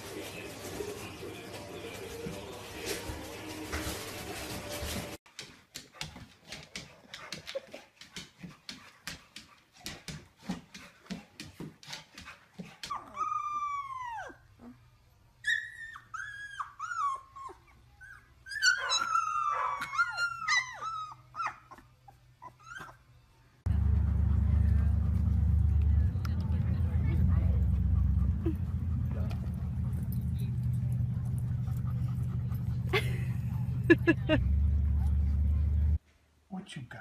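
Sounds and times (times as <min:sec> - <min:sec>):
puppies yelping and whining: 0:12.9 - 0:14.8, 0:15.4 - 0:23.1.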